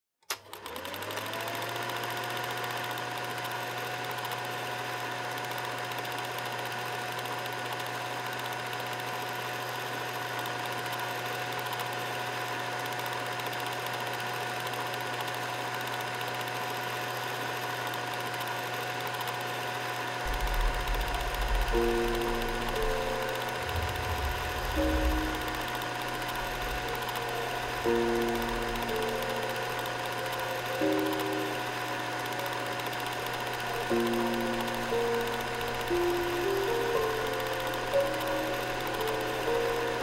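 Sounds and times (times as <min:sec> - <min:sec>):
film projector motor running: 0:00.3 - 0:40.0
fast even rattle: 0:20.3 - 0:32.0
low hum: 0:20.3 - 0:40.0.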